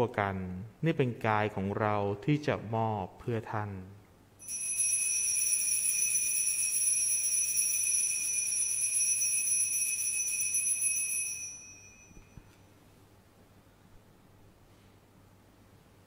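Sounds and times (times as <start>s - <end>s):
altar bells ringing: 4.4s - 12.4s.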